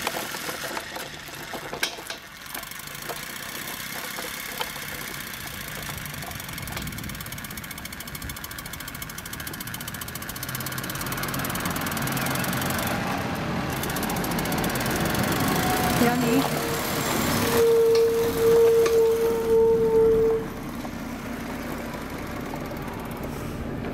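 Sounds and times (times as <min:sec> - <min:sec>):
steam engine exhaust beat: 0:04.8 - 0:23.9.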